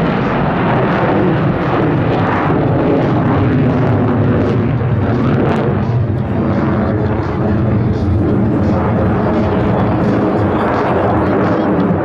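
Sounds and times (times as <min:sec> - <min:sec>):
jet engine afterburner roar with crackle: 0:00.0 - 0:12.0.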